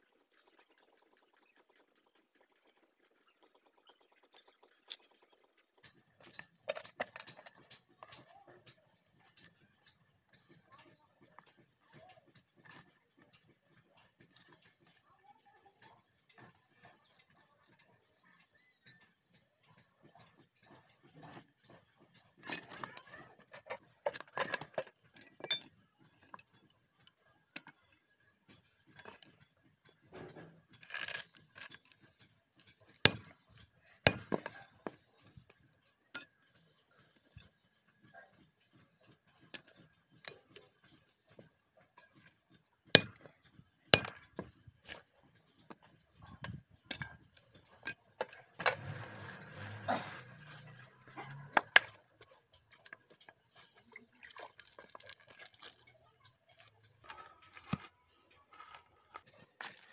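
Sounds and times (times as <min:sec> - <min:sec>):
metal bars clinking: 0:33.1 - 0:34.6, 0:43.0 - 0:43.3, 0:44.0 - 0:44.5
ringing metal clanks: 0:33.1 - 0:35.0, 0:43.0 - 0:44.5.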